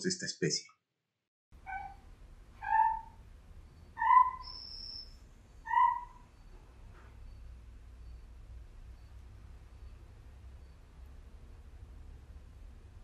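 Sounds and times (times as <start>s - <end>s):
tree frog calls: 1.6s - 2.0s, 2.6s - 3.2s, 3.9s - 6.5s.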